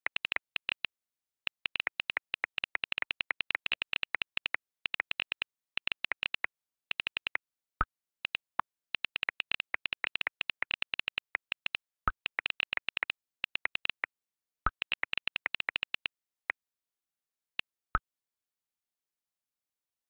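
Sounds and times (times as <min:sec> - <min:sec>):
phone keyboard clicking: 0:01.5 - 0:07.4, 0:08.2 - 0:14.1, 0:14.7 - 0:16.1.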